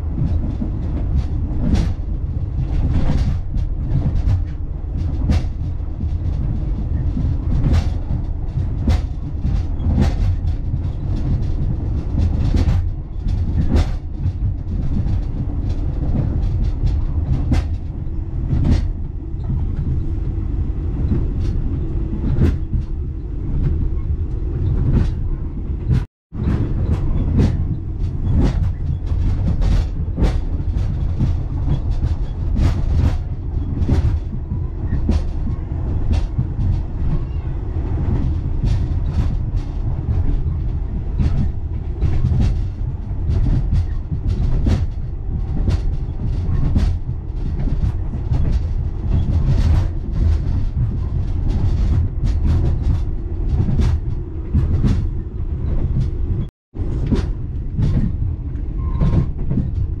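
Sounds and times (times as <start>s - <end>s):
train clicks and knocks: 0.0s - 60.0s
train wheels rumbling on track: 0.0s - 60.0s.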